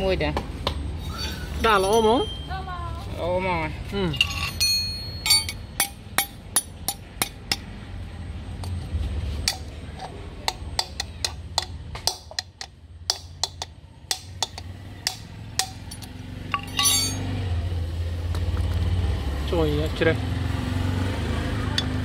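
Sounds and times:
hammer striking metal rod: 4.2s - 7.8s, 9.4s - 17.2s.

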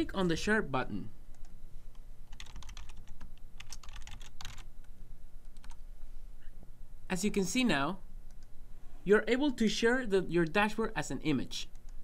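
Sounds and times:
computer keyboard typing: 2.3s - 4.7s, 5.6s - 5.8s.

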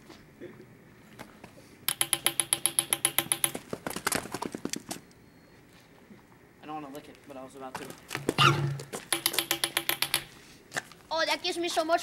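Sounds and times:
rapid sharp tapping: 1.9s - 3.9s, 9.1s - 10.3s.

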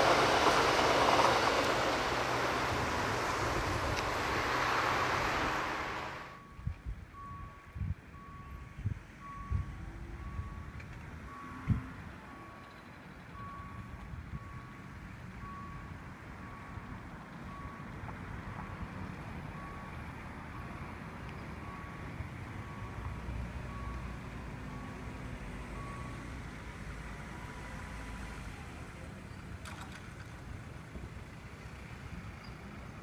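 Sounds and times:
road traffic rumbling: 0.0s - 33.0s
level crossing warning bell: 4.9s - 18.0s, 19.5s - 26.3s.

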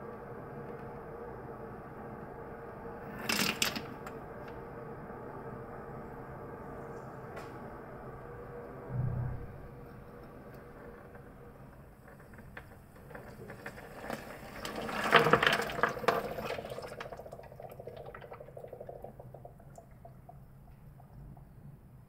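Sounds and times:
clay bricks tumbling into water: 12.2s - 19.6s.

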